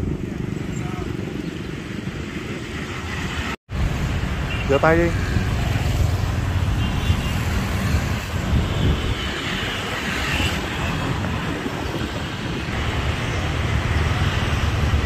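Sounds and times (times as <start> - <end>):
wind buffeting microphone: 0.0 - 4.4, 5.1 - 15.0
street traffic hiss: 0.0 - 15.0.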